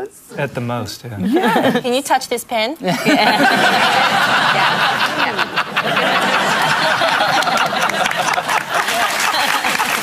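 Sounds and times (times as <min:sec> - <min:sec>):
crowd laughing: 0:02.9 - 0:10.0
people clapping: 0:06.1 - 0:10.0.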